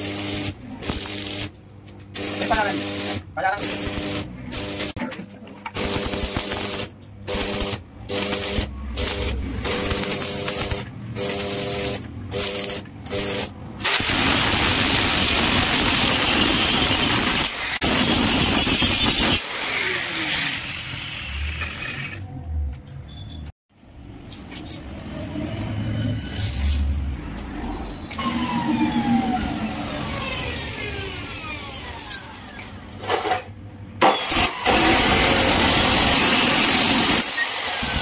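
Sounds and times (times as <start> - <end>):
welding arc crackling and sizzling: 0.0 - 21.6.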